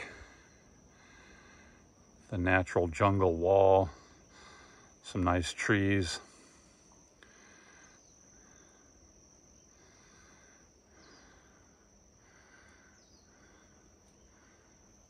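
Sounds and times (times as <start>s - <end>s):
insect chirps: 0.0s - 15.0s
insect trill: 0.0s - 15.0s.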